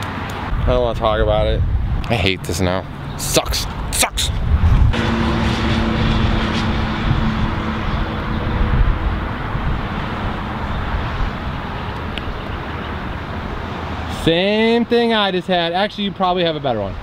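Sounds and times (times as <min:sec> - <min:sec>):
low outdoor rumble: 0:00.5 - 0:13.4
humming tone: 0:04.9 - 0:10.9.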